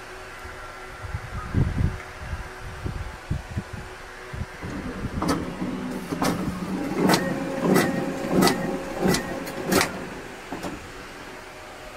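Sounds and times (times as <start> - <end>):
steady motor hum: 0.0 - 11.9.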